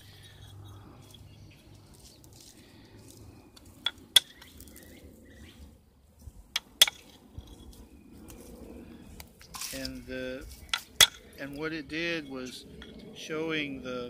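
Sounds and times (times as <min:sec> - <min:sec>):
antler tool clicking on stone: 0:03.6 - 0:04.8, 0:06.6 - 0:07.6.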